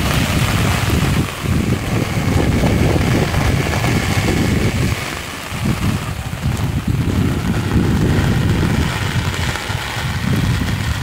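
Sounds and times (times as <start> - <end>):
heavy rain hissing: 0.0 - 11.0
wind buffeting microphone: 0.0 - 11.0.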